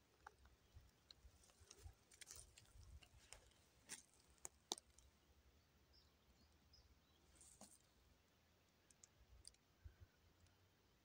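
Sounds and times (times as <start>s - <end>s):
footsteps on dry leaves and twigs: 1.3s - 4.8s.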